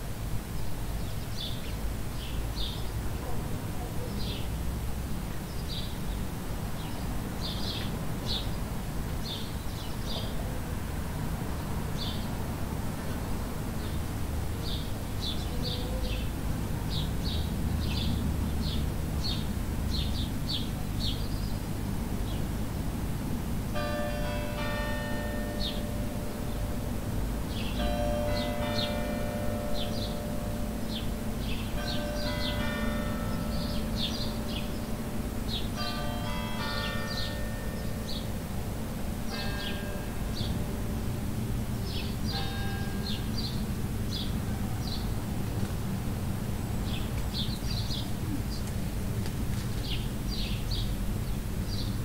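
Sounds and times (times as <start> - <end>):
bells ringing: 23.8 - 45.4
small birds chirping: 46.8 - 48.8.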